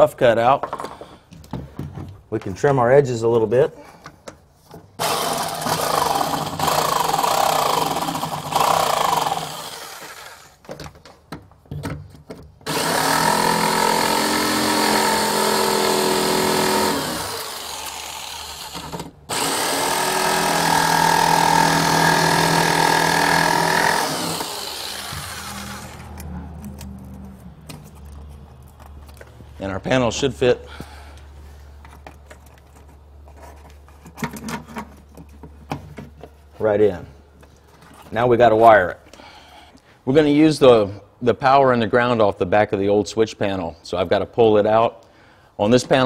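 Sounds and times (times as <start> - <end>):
jigsaw cutting: 5.0 - 10.6, 12.7 - 26.2.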